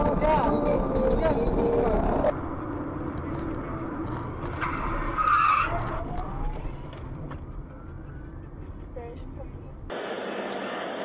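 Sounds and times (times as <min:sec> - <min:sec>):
car engine and road noise: 0:00.0 - 0:11.0
car tyres skidding: 0:04.2 - 0:08.7.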